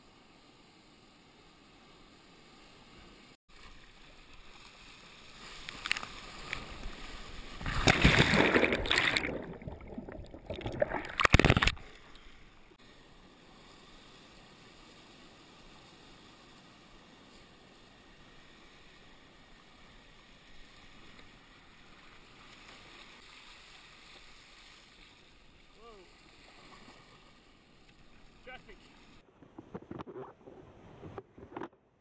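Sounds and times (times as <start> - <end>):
surf crashing and splashing: 4.7 - 12.1.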